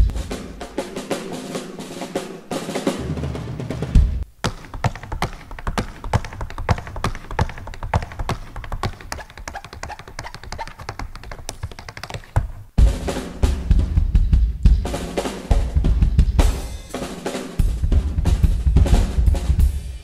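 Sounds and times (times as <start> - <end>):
drum kit crashing: 0.0 - 9.1, 12.2 - 20.0
tap shoes striking stage board: 4.4 - 12.7.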